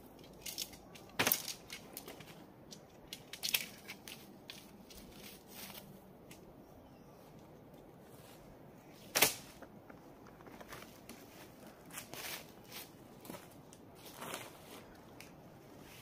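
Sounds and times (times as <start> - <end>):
tent poles clicking: 0.0 - 6.5, 9.1 - 11.3
dry leaves underfoot: 3.1 - 6.0, 10.4 - 16.0
tent fabric rustling: 10.4 - 15.0.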